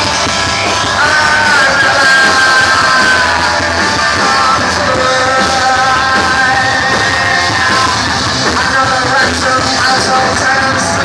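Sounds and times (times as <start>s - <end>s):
punk rock band playing live: 0.0s - 11.0s.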